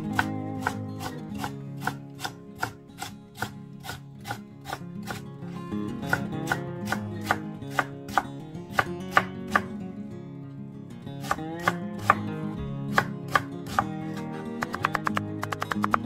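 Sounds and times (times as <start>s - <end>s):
knife tapping on cutting board: 14.6s - 16.0s.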